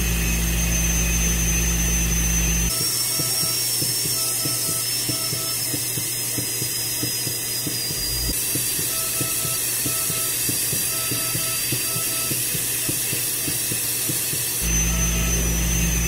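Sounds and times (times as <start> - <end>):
low hum: 0.0 - 2.7
dental scaler high whine: 0.0 - 16.0
spray and suction hiss: 2.7 - 14.6.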